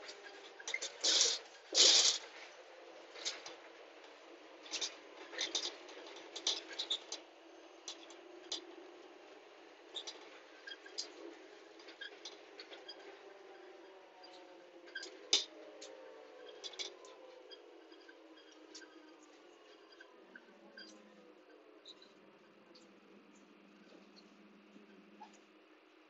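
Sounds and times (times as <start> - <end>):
small clicks and scratches: 0.2 - 2.5, 3.1 - 8.7.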